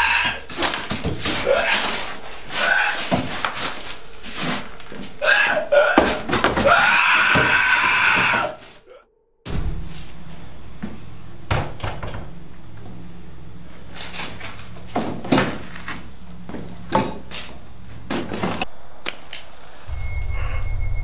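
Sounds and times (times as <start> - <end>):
low hum: 8.6 - 21.0
knocking on wooden door: 11.5 - 12.4.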